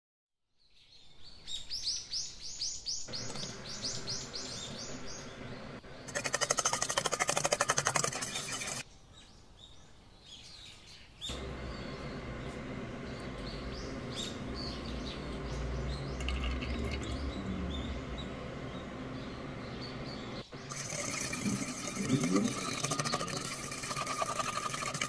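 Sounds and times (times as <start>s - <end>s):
bird chirping: 0.6s - 24.9s
fork beating eggs in metal bowl: 6.0s - 8.8s, 20.6s - 25.0s
low hum: 11.3s - 25.0s.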